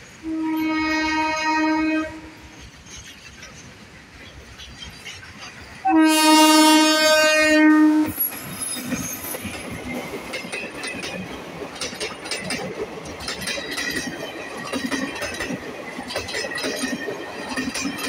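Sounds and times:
locomotive air horn: 0:00.2 - 0:02.5, 0:05.8 - 0:08.2
train wheels clicking over rail joints: 0:02.3 - 0:06.7, 0:08.1 - 0:18.0.

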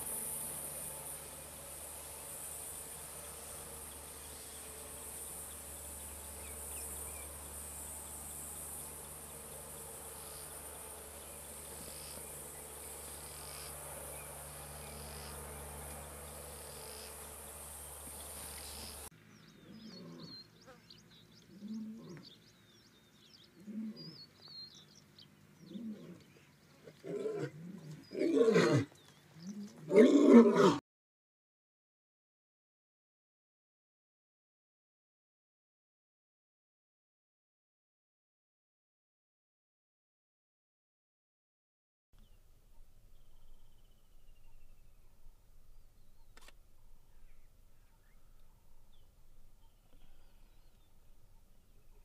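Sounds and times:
high insect chirring: 0:00.0 - 0:19.1
birds chirping: 0:00.0 - 0:30.2, 0:42.2 - 0:52.0
lion moaning calls: 0:23.6 - 0:24.2, 0:25.6 - 0:30.8.

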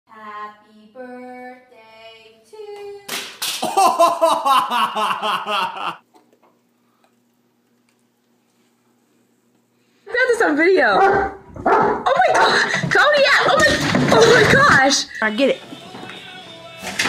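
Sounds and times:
woman singing: 0:00.1 - 0:03.1.

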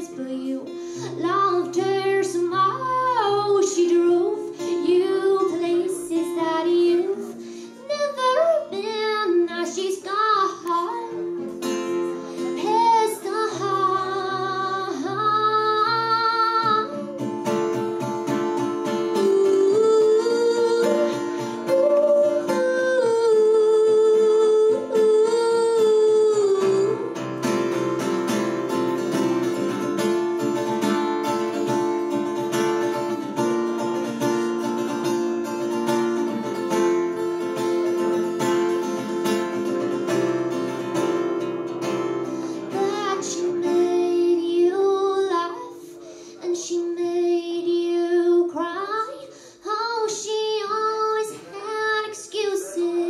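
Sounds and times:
woman singing: 0:00.0 - 0:11.5, 0:12.4 - 0:27.8, 0:42.6 - 0:53.0
acoustic guitar strumming: 0:00.0 - 0:46.4.

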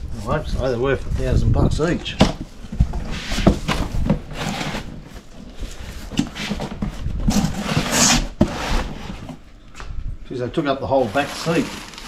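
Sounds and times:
cardboard box scraping and rustling: 0:02.6 - 0:09.4, 0:10.9 - 0:12.0.

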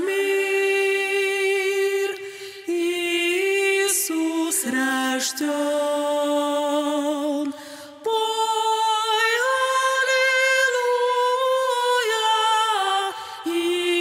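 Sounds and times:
singer breath: 0:02.2 - 0:02.7, 0:07.5 - 0:08.0, 0:13.1 - 0:13.5.

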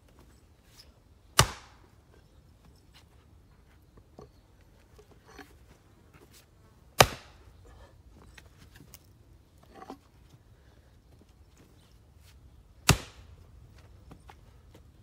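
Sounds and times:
axe splitting firewood: 0:01.4 - 0:02.0, 0:07.0 - 0:07.6, 0:12.8 - 0:13.4.

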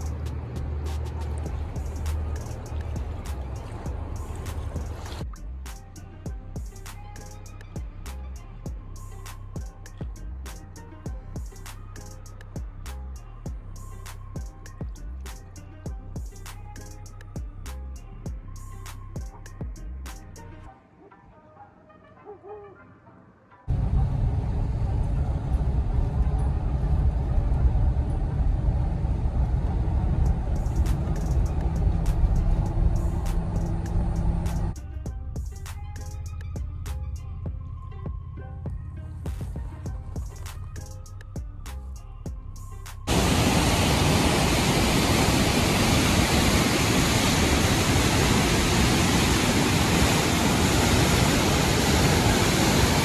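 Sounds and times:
car interior road rumble: 0:00.0 - 0:05.3, 0:23.7 - 0:34.8
whitewater river rushing: 0:43.1 - 0:53.0.

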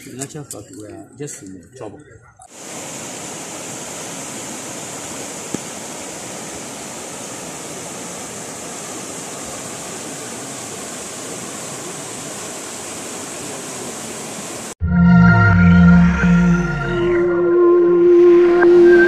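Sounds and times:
floodwater rushing: 0:02.5 - 0:14.8.

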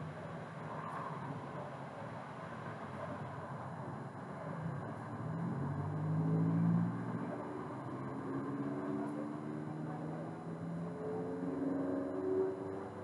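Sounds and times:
low traffic hum: 0:00.0 - 0:13.0
vehicle engine accelerating: 0:05.0 - 0:13.0.

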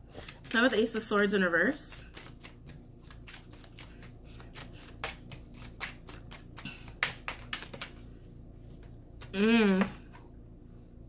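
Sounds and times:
cards being shuffled: 0:00.2 - 0:08.0.

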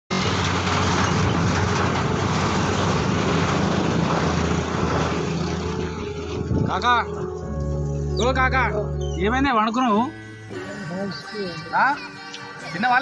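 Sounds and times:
motor vehicle running: 0:00.1 - 0:09.4.

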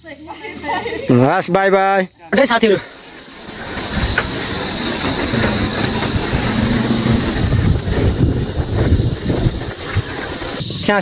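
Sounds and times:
insects buzzing: 0:00.0 - 0:11.0
wind on microphone: 0:03.8 - 0:10.4.

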